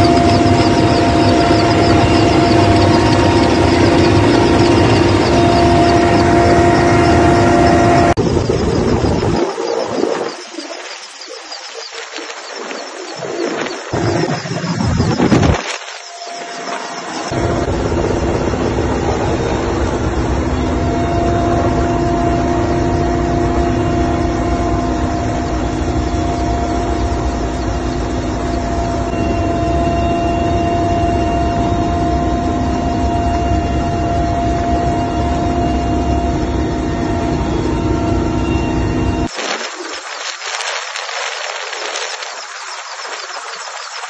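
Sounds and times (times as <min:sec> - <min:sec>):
helicopter engines and rotor: 0:00.0 - 0:44.0
high-pitched whine: 0:00.0 - 0:44.0.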